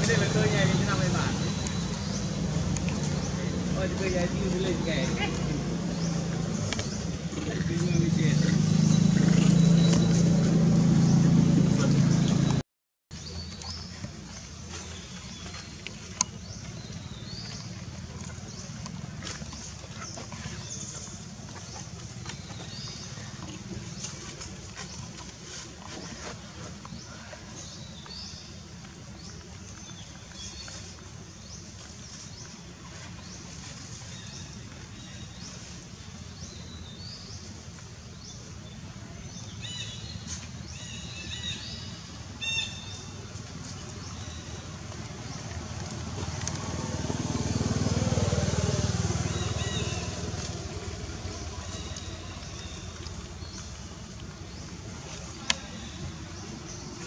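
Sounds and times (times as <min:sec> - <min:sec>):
motor vehicle passing: 0:00.0 - 0:12.6, 0:44.1 - 0:57.0.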